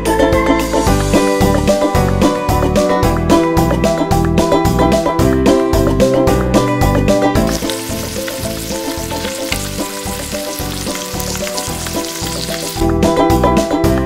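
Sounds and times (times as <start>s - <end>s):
background music: 0.0s - 14.0s
meat sizzling in oil: 7.4s - 13.1s.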